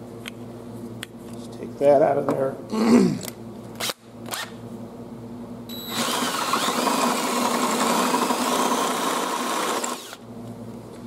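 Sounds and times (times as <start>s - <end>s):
power drill drilling metal: 5.8s - 10.2s.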